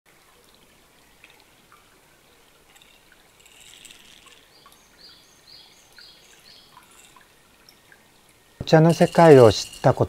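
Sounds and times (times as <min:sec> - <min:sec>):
water trickling: 0:00.1 - 0:10.0
small ticks: 0:02.6 - 0:08.0.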